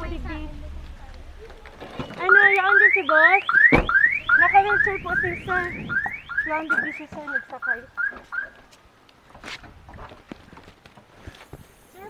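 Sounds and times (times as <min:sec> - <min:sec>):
car alarm siren: 0:02.0 - 0:08.6.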